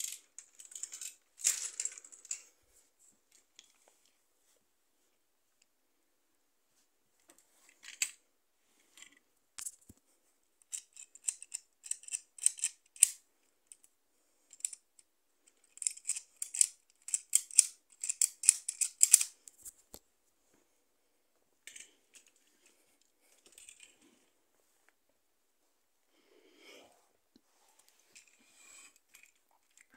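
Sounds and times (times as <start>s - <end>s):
plastic parts clicking: 10.6s - 13.9s, 15.6s - 19.4s.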